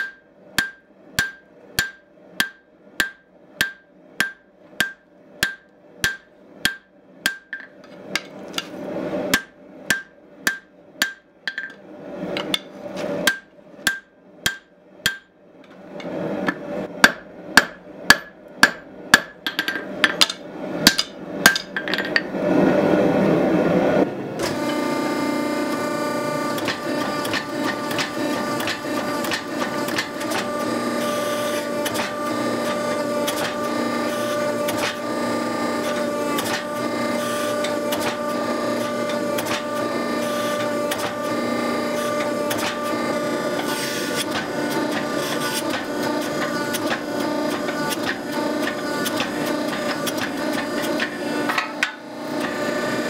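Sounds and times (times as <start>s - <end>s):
hammer ringing on anvil: 0.0s - 7.6s
hydraulic press humming: 24.3s - 53.0s.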